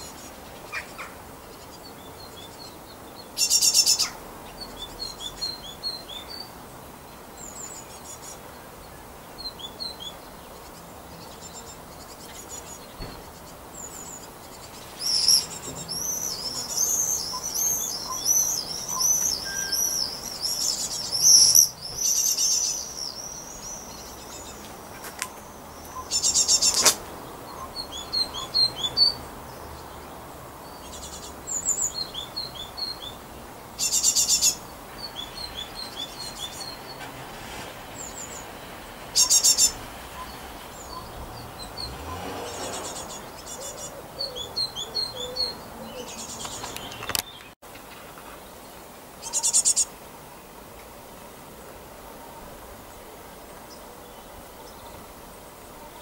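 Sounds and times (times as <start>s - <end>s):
buzzy rasping bird calls: 0.0s - 2.4s, 3.3s - 6.5s, 9.7s - 29.4s, 33.8s - 47.4s, 49.2s - 50.0s
birds chirping high: 0.0s - 50.7s, 51.4s - 56.0s.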